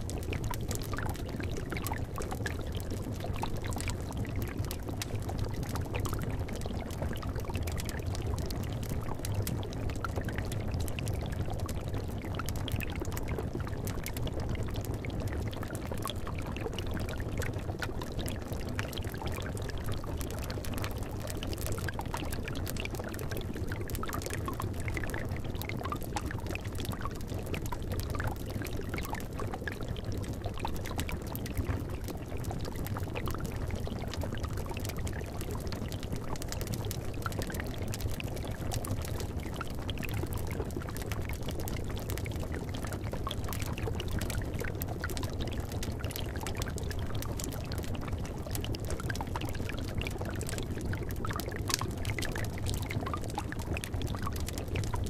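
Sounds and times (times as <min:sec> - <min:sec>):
liquid bubbling in a cauldron: 0:00.0 - 0:55.0.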